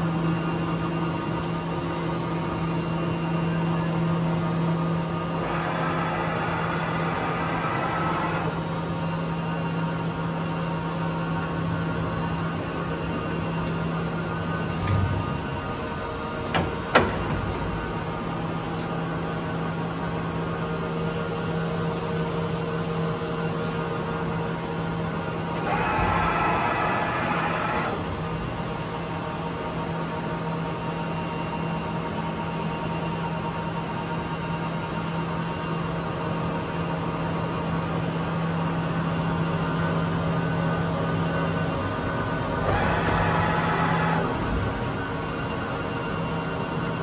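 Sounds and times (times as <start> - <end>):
lathe running with low hum: 0.0 - 47.0
lathe humming: 5.1 - 9.0, 25.4 - 28.2.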